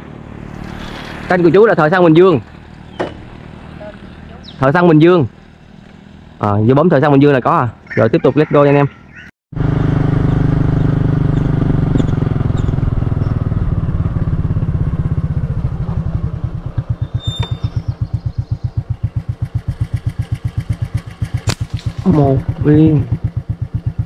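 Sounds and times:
motorcycle engine idling: 9.6s - 24.0s.

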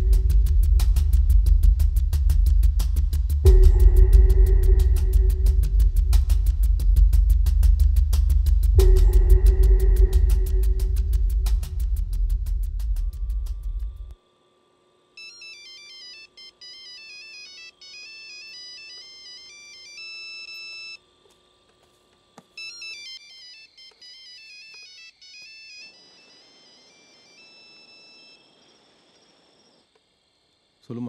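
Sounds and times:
mobile phone electronic ringtone: 15.2s - 21.0s, 22.6s - 28.6s.

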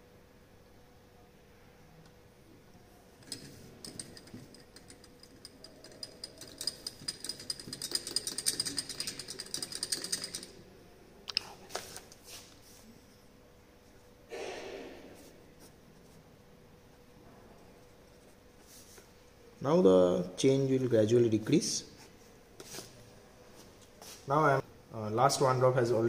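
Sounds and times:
glass clinking: 3.2s - 10.6s.

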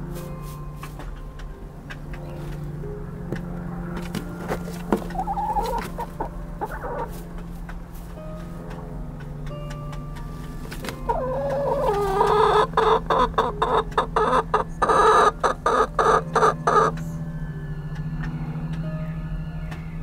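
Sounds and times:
low hum: 0.0s - 20.0s
chicken calling and clucking: 4.6s - 7.5s, 10.8s - 17.1s.

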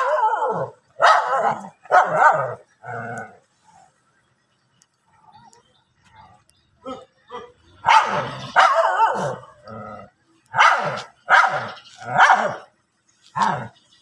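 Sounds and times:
dogs barking angrily: 0.0s - 3.2s, 7.8s - 9.8s, 10.5s - 12.7s, 13.3s - 13.8s.

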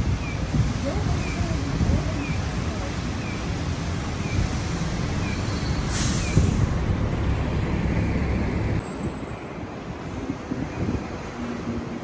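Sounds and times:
road traffic rumble: 0.0s - 12.0s
burst of hiss: 5.6s - 6.7s.

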